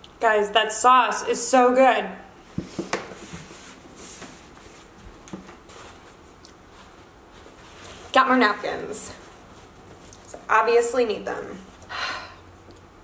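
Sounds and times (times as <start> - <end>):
paper napkin rustling: 2.7 - 10.5.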